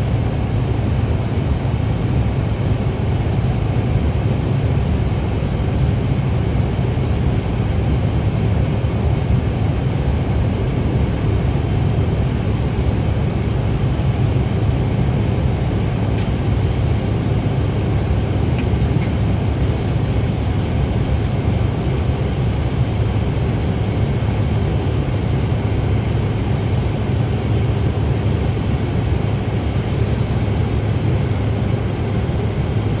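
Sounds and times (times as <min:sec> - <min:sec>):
jet engines rumbling in cabin: 0:00.0 - 0:33.0.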